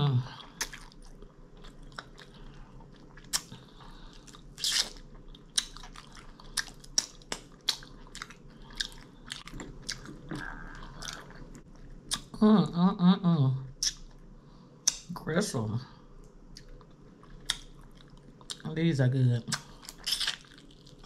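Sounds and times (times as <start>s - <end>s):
person chewing food: 0.1s - 12.4s, 16.2s - 18.7s, 19.4s - 21.0s.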